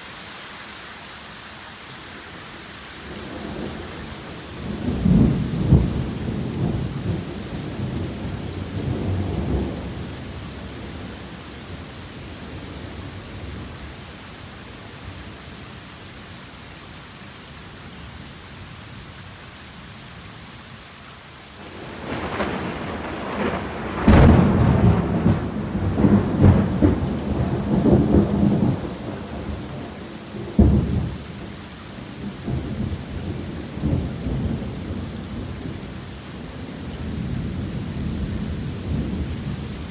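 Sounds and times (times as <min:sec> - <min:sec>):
torrential rain falling: 0:00.0 - 0:39.9
thunder rumbling and cracking: 0:04.6 - 0:11.2, 0:21.7 - 0:31.4.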